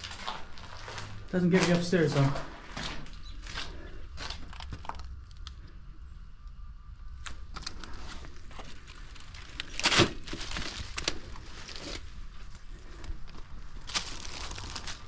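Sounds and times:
footsteps crunching on rubble: 0.0 - 5.0.

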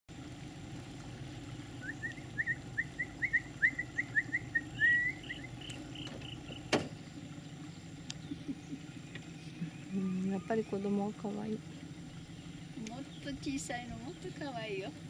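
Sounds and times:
steady low hum: 0.1 - 15.0
bird chirping: 1.8 - 11.1.

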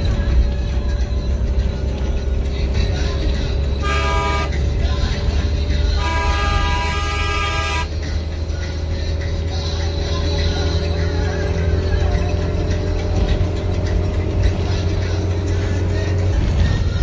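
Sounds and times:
bus engine drone: 0.0 - 17.0
bus horn blasts: 3.5 - 8.2.

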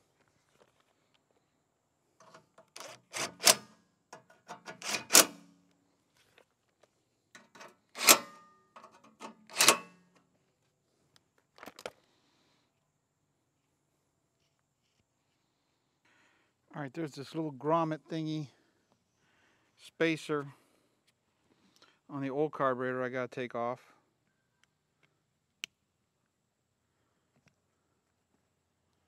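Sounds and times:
impact driver hammering: 4.6 - 5.5.

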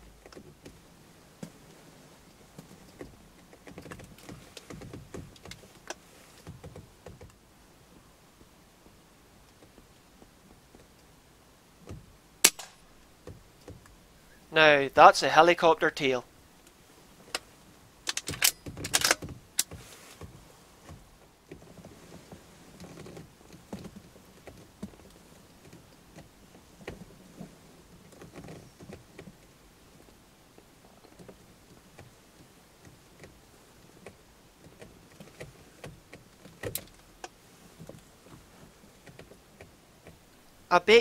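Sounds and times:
small rustles: 0.0 - 14.8, 16.0 - 41.0
handling clicks and knocks: 1.4 - 7.4, 11.8 - 14.0, 17.2 - 40.4.

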